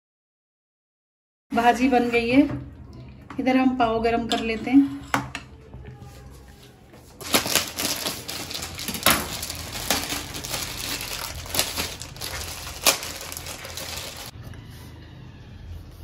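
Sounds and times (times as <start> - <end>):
plastic packet crinkling: 7.1 - 14.3.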